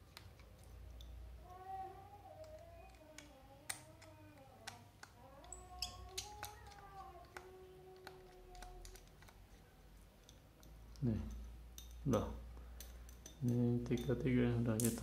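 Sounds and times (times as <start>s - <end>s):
small screwdriver clicking: 2.4s - 9.4s.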